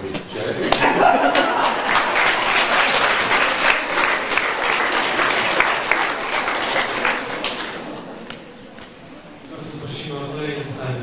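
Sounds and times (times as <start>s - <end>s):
audience applause: 0.8s - 8.3s.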